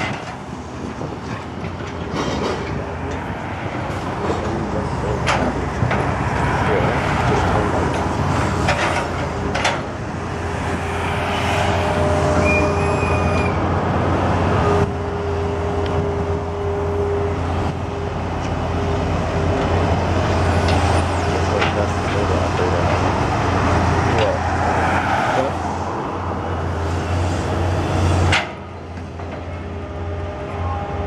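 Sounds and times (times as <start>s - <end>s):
excavator diesel engine under load: 0.0s - 31.0s
high squeal: 11.4s - 13.6s.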